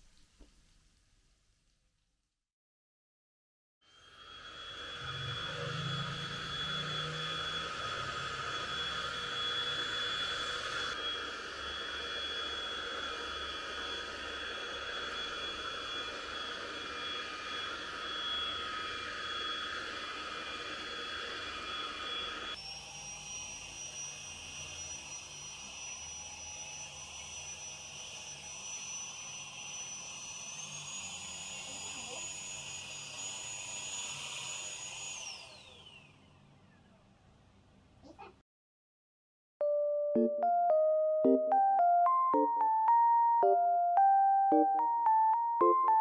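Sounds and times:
handheld vacuum cleaner whine: 3.9 - 36.4.

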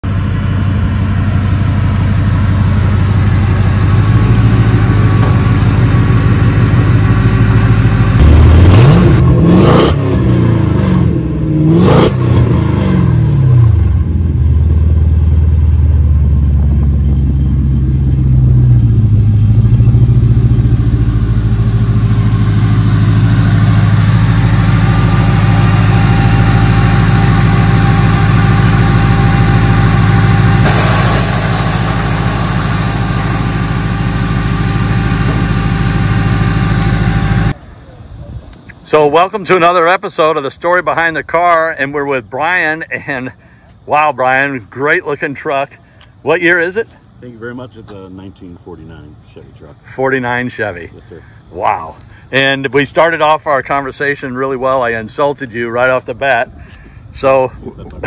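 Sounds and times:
engine idling and revving: 0.0 - 37.6.

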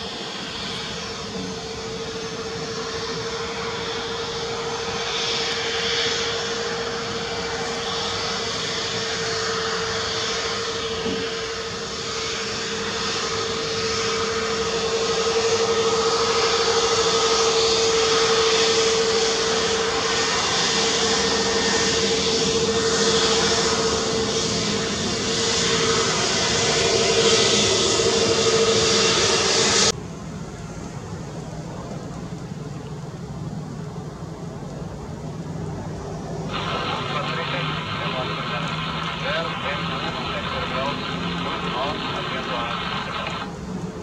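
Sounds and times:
jet engines humming: 0.0 - 44.0
rushing noise: 36.5 - 43.6.

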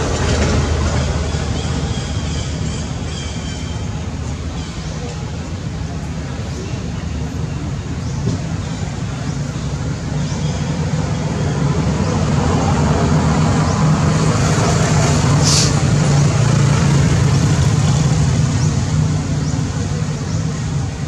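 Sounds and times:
low engine rumble: 0.0 - 21.0
brief high hiss: 15.4 - 15.8.

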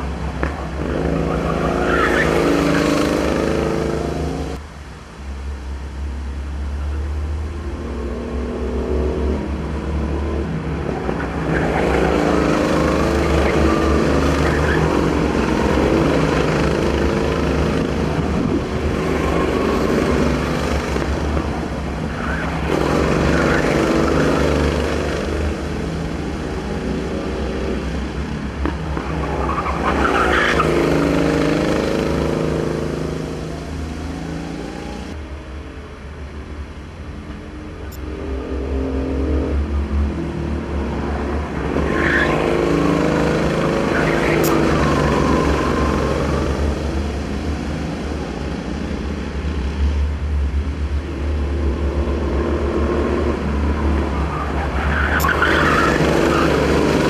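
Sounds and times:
kart engines revving: 0.0 - 4.6, 7.9 - 35.2, 37.9 - 57.0.

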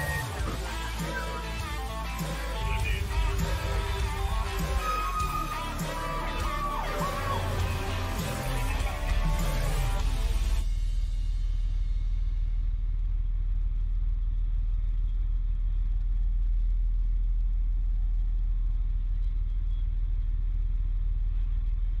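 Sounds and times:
diesel engine rumbling: 0.0 - 10.6.

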